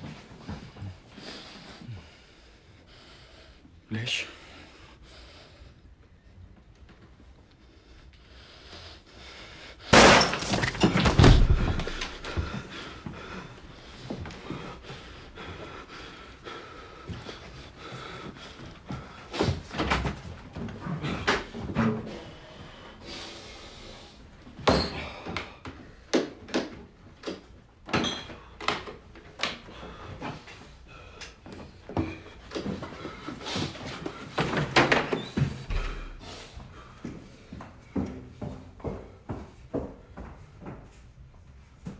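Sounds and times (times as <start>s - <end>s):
pistol shots in a small room: 9.9s - 11.6s.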